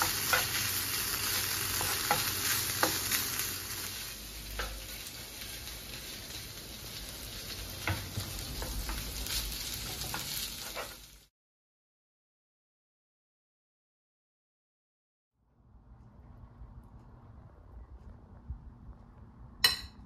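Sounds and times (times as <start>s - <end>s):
food sizzling in a pan: 0.0s - 11.3s.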